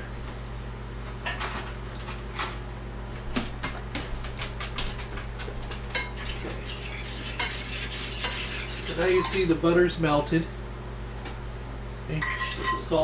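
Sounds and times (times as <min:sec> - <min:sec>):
steady low hum: 0:00.0 - 0:13.0
cutlery and dishes clinking: 0:12.2 - 0:12.9.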